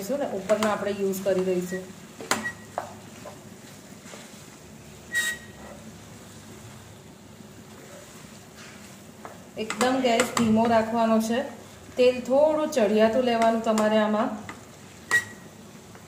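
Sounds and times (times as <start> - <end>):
steady low hiss: 0.0 - 16.0
spatula tapping pan: 0.4 - 1.5, 9.2 - 11.0, 13.3 - 15.4
spatula scraping pan: 5.1 - 5.8.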